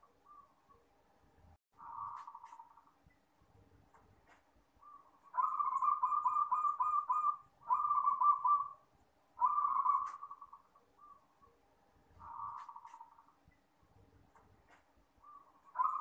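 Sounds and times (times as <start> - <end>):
dove cooing: 1.8 - 2.7, 4.8 - 8.8, 9.4 - 11.2, 12.2 - 13.2, 15.2 - 16.0.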